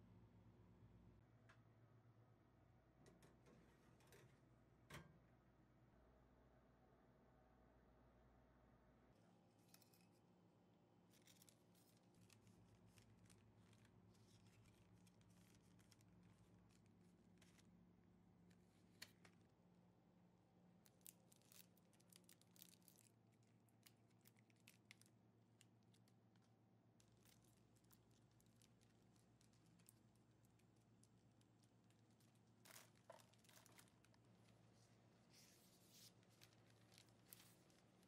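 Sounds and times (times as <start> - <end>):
low steady hum: 0.0 - 38.0
cellophane bags crinkling: 11.1 - 17.7, 20.9 - 25.2, 27.0 - 34.8, 35.4 - 38.0.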